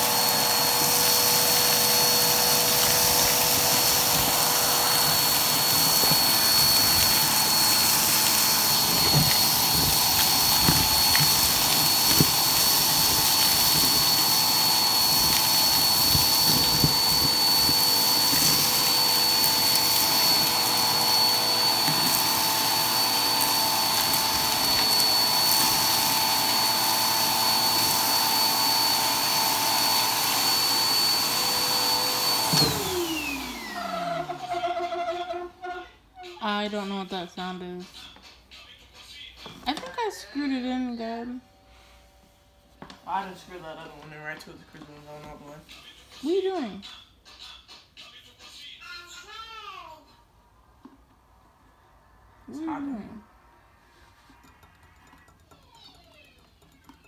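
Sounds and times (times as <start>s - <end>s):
debris crackling in hose: 0.0s - 29.4s
vacuum motor winding down: 0.0s - 35.8s
vacuum cleaner whine: 0.0s - 37.7s, 39.4s - 46.7s, 50.5s - 54.6s.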